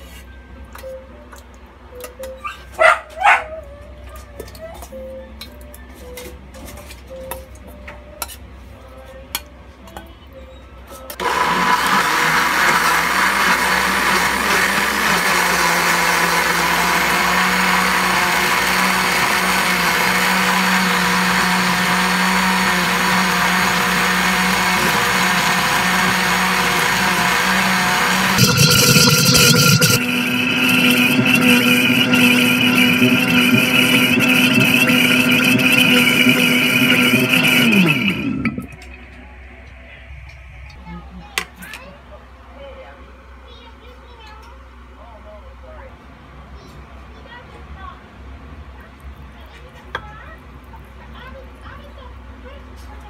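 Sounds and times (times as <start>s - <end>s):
blender motor running: 11.2s - 39.0s.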